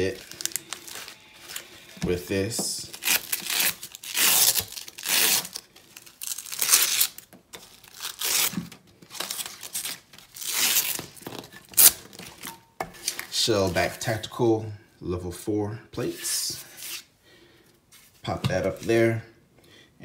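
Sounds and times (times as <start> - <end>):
velcro straps ripping apart: 2.8 - 11.2, 11.8 - 12.0.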